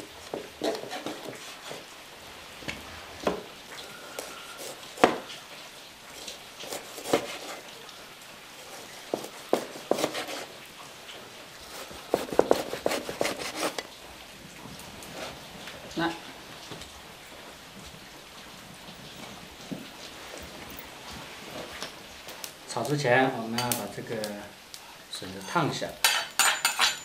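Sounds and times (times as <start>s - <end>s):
cleaver chopping on a board: 6.7s - 7.5s, 9.1s - 10.4s, 12.1s - 13.7s.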